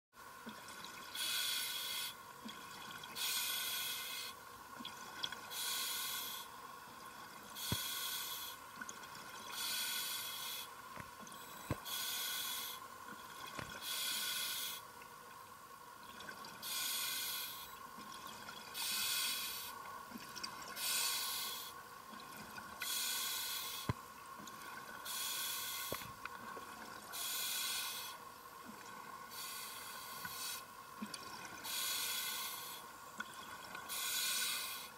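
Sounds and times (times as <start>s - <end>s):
faint steady hum: 0.2s - 34.9s.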